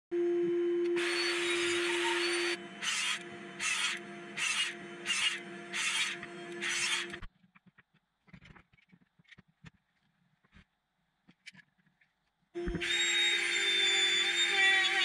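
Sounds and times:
steady hum: 0:00.1 - 0:07.3.

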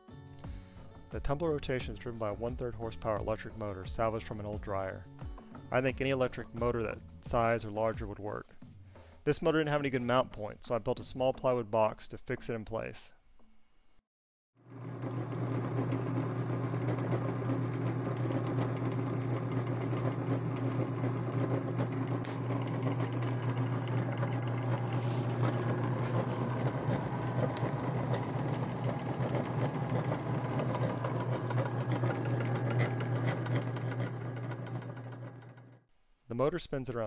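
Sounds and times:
electric motor humming: 0:14.7 - 0:35.8
mechanical clatter: 0:15.1 - 0:35.8.

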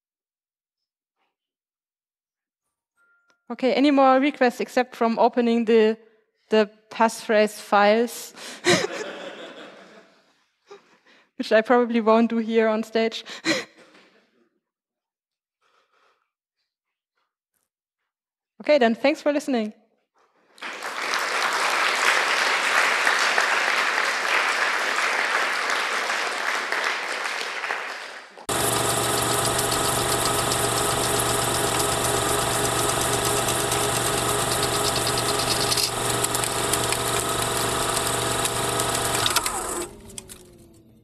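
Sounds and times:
audience applauding: 0:20.6 - 0:39.4
film projector whirring: 0:28.5 - 0:41.0.

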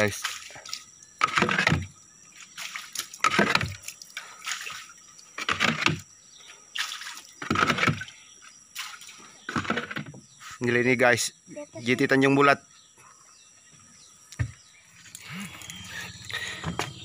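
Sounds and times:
water lapping against boat hulls: 0:00.0 - 0:10.3.

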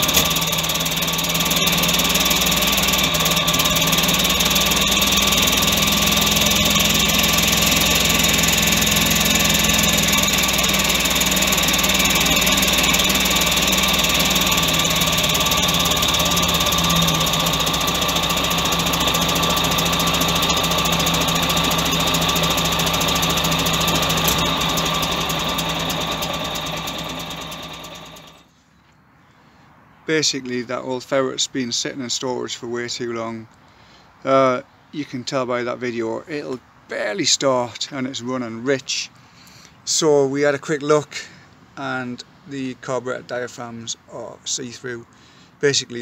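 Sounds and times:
engine idling: 0:00.0 - 0:28.5.

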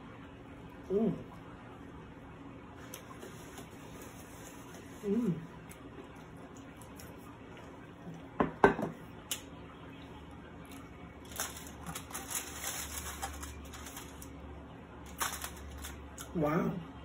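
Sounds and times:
flatbread crackling: 0:10.8 - 0:16.3.

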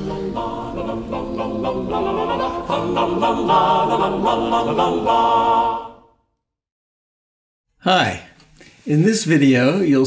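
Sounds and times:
voices singing a cappella: 0:00.0 - 0:06.3.

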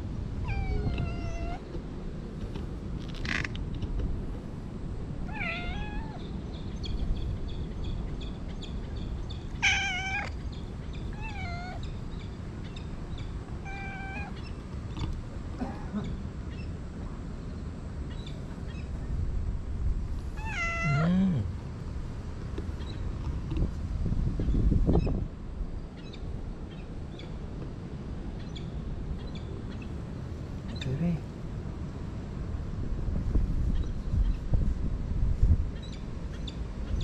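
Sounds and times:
cat meowing: 0:00.4 - 0:01.6, 0:05.3 - 0:06.2, 0:09.6 - 0:10.3, 0:11.1 - 0:11.8, 0:13.6 - 0:14.4, 0:20.4 - 0:21.2.

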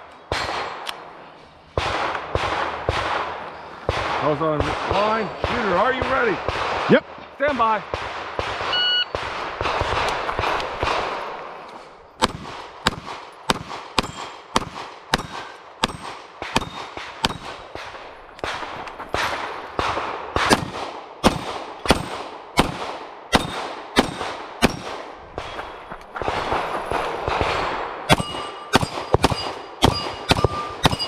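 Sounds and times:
pistol shots: 0:00.3 - 0:01.0, 0:01.8 - 0:07.1, 0:07.8 - 0:11.6, 0:12.2 - 0:31.0
steel targets ringing: 0:28.1 - 0:31.0.

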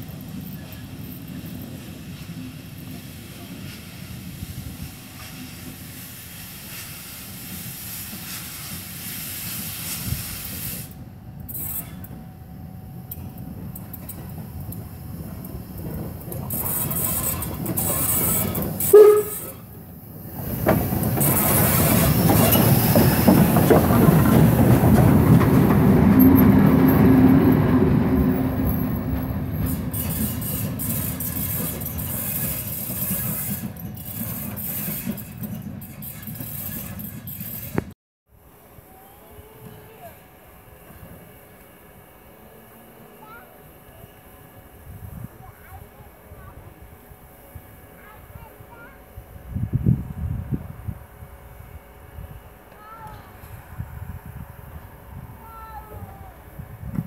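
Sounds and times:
train running on rails: 0:00.0 - 0:57.0
steam hissing: 0:01.3 - 0:12.1.

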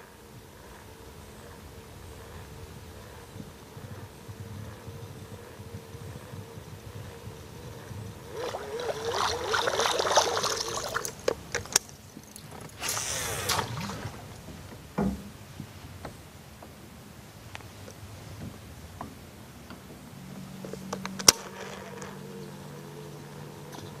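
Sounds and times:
water splashing and gurgling: 0:08.3 - 0:11.8, 0:12.8 - 0:14.7
dull knock: 0:15.0 - 0:15.3.

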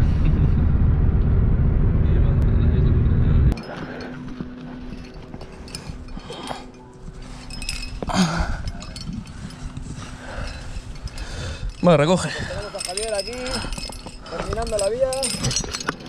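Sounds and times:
car road noise: 0:00.0 - 0:05.4
climbing gear clinking and scraping: 0:03.5 - 0:16.0.

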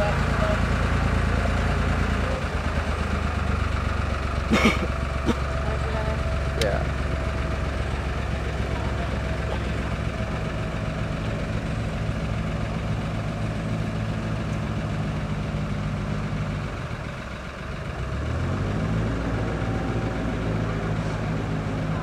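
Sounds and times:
diesel engine chugging: 0:00.0 - 0:22.0.

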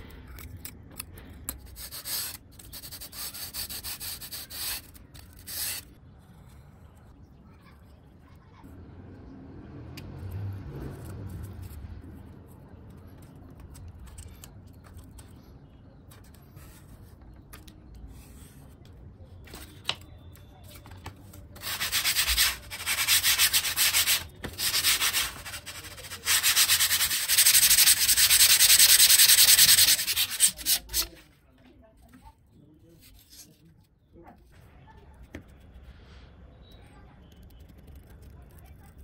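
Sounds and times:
sandpaper scratching foam: 0:01.6 - 0:06.0, 0:21.6 - 0:31.2.

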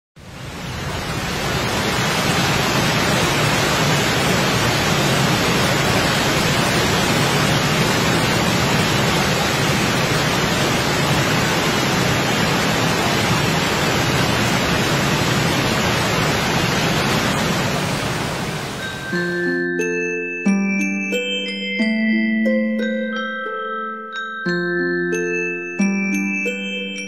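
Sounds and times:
floodwater rushing through rapids: 0:00.2 - 0:19.2.

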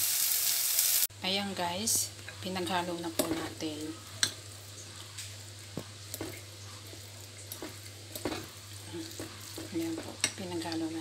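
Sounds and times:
spoon stirring food in a bowl: 0:05.0 - 0:10.9.

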